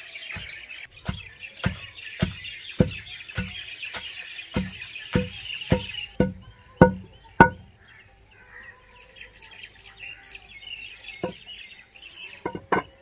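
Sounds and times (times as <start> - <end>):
birds chirping: 0.0 - 13.0
pestle pounding in stone mortar: 0.3 - 7.6.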